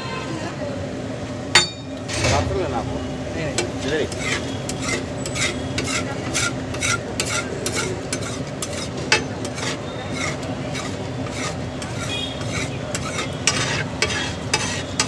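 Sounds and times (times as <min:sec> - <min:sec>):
metal spatula scraping griddle: 0:03.5 - 0:15.0
metal clack on griddle: 0:03.6 - 0:15.0
food sizzling on griddle: 0:03.8 - 0:15.0.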